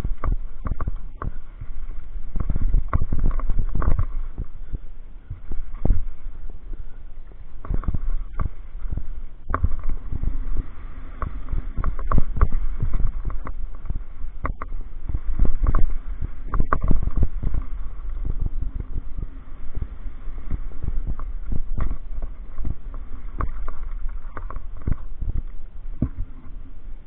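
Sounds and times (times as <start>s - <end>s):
bike rumbling over gravel: 7.6s - 26.4s.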